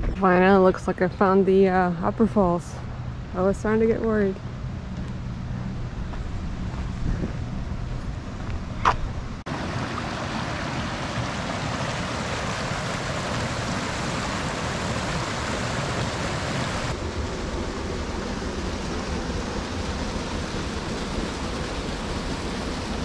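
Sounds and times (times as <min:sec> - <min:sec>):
creek water rushing over rocks: 0:09.5 - 0:17.0.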